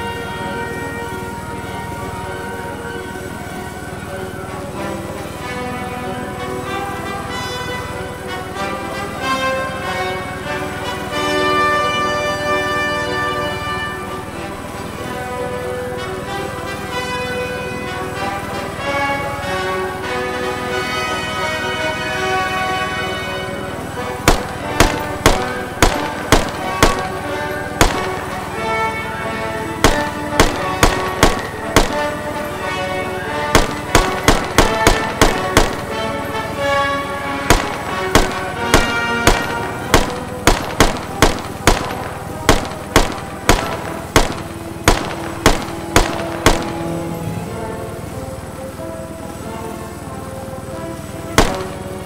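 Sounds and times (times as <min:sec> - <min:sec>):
background music: 0:00.0 - 0:52.0
rifle shots: 0:24.0 - 0:29.0, 0:29.8 - 0:47.2, 0:51.4 - 0:52.0.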